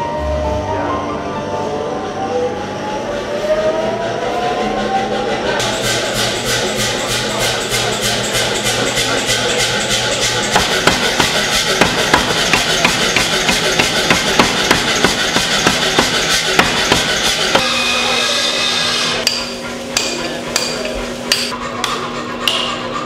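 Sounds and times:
machine hum: 0:00.0 - 0:23.0
power hammer pounding metal: 0:05.6 - 0:22.9
ringing hammer blows on metal: 0:05.6 - 0:22.9.

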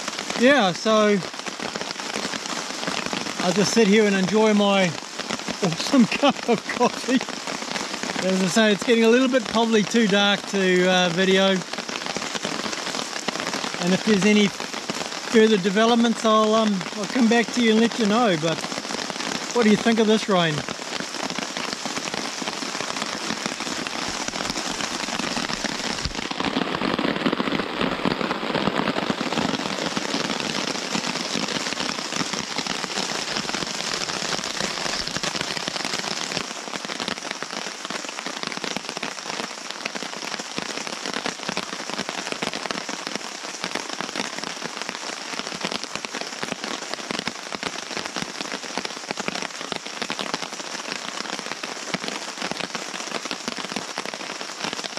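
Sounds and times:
heavy rain on a tarp: 0:00.0 - 0:54.9.

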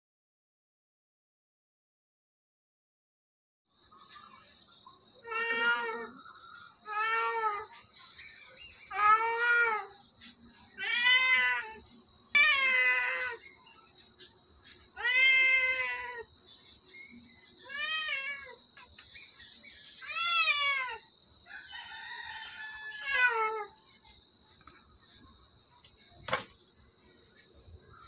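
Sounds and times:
cat meowing: 0:05.2 - 0:06.2, 0:08.9 - 0:09.9, 0:10.8 - 0:11.8, 0:12.4 - 0:13.4, 0:15.0 - 0:16.3, 0:17.6 - 0:18.6, 0:20.0 - 0:21.1, 0:22.7 - 0:23.7.

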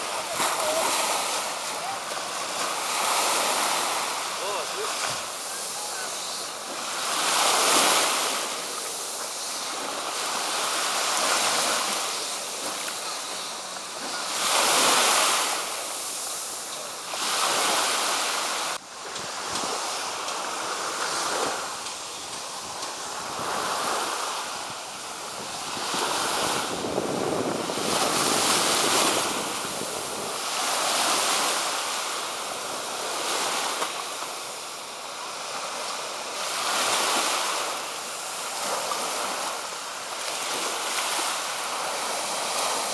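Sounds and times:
waves washing onto beach: 0:00.0 - 0:42.9
wind on microphone: 0:20.7 - 0:31.7.

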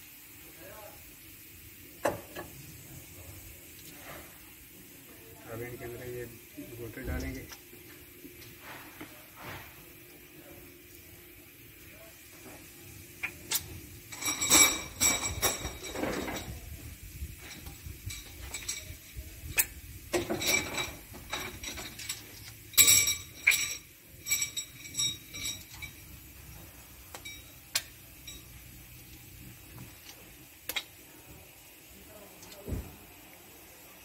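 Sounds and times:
small metal parts clinking: 0:14.1 - 0:16.6, 0:17.4 - 0:26.1.

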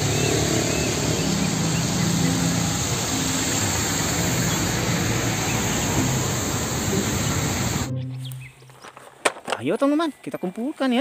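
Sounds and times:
diesel truck engine driving past: 0:00.0 - 0:08.1
road traffic hiss: 0:00.0 - 0:08.5.

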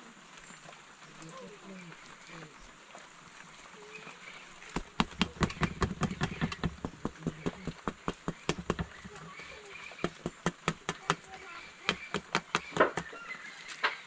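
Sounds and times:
hands patting bread dough: 0:04.8 - 0:09.3, 0:10.0 - 0:13.1.

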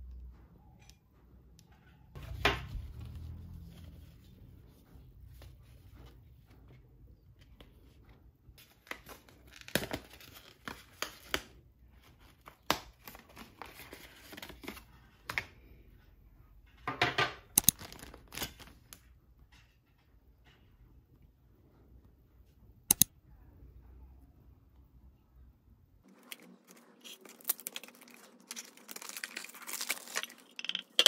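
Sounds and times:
sharp clicks: 0:22.9 - 0:23.1
plastic bag crinkling: 0:26.1 - 0:31.0.

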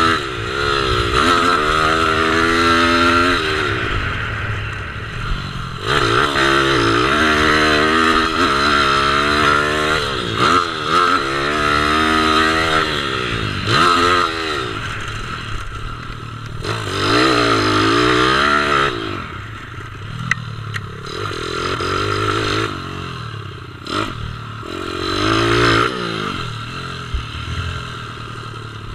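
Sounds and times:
motorbike engine revving: 0:00.0 - 0:28.9
sharp clicks: 0:20.2 - 0:20.9.

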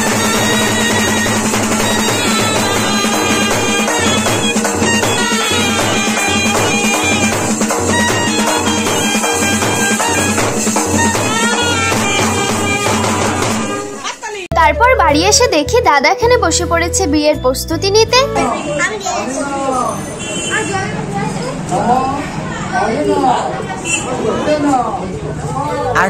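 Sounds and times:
large drum beat: 0:00.0 - 0:14.0
clarinet and trumpets melody: 0:00.0 - 0:18.8.

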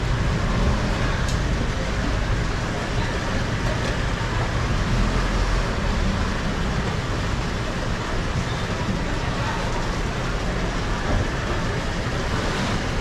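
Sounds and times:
steady low rumble: 0:00.0 - 0:08.2.

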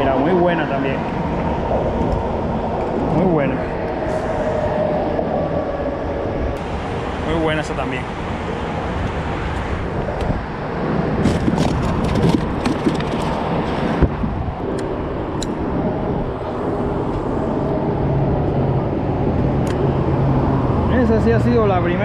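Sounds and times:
road traffic rumble: 0:00.0 - 0:22.0
sharp clicks and knocks: 0:11.2 - 0:15.6.

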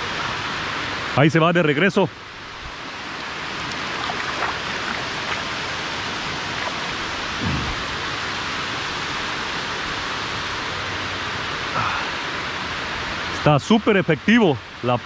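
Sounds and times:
water rushing down spillway: 0:02.8 - 0:10.7
low thump: 0:07.4 - 0:07.9.

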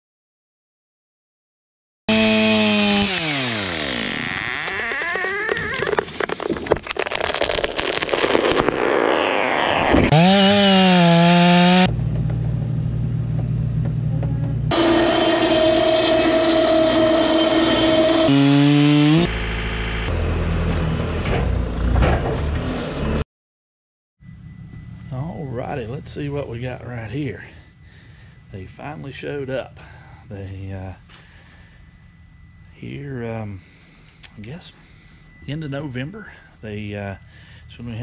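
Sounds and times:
rough crackling noise with clicks: 0:04.6 - 0:09.4
machinery engines running: 0:10.1 - 0:23.2.

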